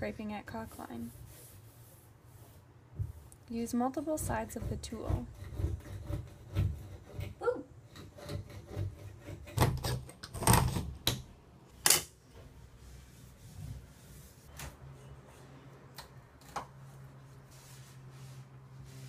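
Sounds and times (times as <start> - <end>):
plastic scraper scraping caulk: 4.3 - 10.9.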